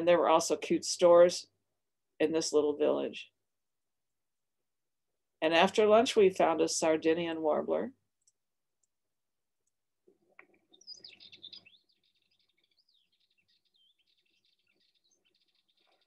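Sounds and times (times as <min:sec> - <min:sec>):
warbler chattering call: 0:10.7 - 0:16.0.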